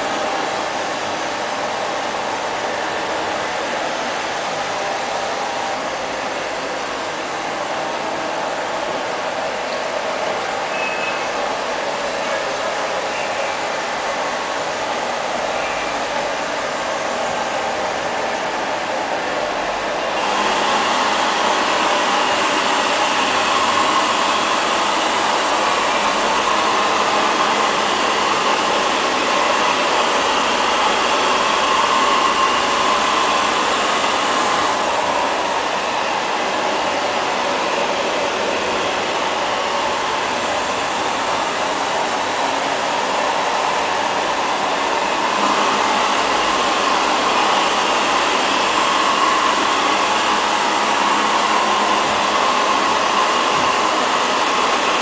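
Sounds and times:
robot vacuum cleaner whirring: 19.9s - 55.0s.

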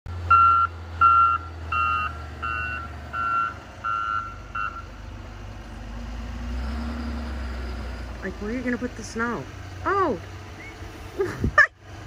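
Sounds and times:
loader engine running low: 0.1s - 12.0s
backup alarm beeping: 0.3s - 4.9s.

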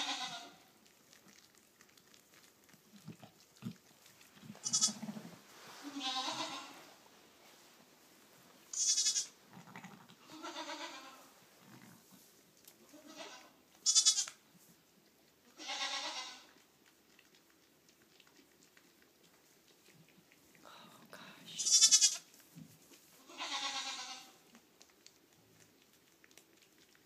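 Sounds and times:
sheep and lamb bleating: 0.0s - 0.6s, 4.5s - 5.2s, 5.8s - 6.8s, 8.7s - 11.2s, 12.8s - 14.4s, 15.5s - 16.5s, 21.6s - 22.3s, 23.2s - 24.4s.

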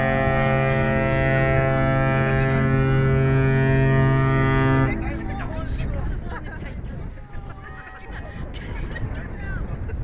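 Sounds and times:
ship's horn deep blast: 0.0s - 5.9s.

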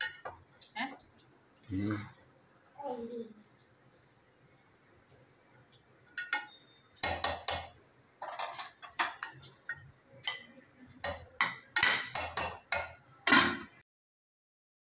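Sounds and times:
metal spoon scraping a pot: 6.1s - 13.8s.

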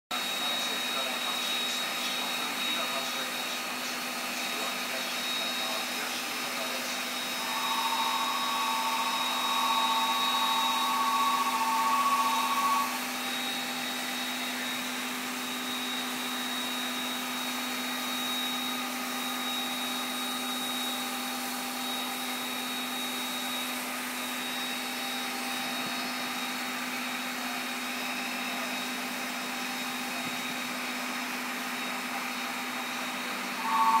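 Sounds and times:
steam locomotive venting steam: 0.2s - 13.0s, 33.1s - 34.0s
steady two-note tone: 7.3s - 13.0s, 33.5s - 34.0s.

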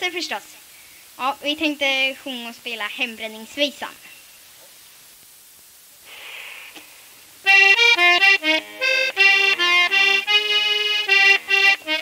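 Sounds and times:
faint hiss: 0.0s - 12.0s
accordion folk melody: 7.4s - 12.0s.

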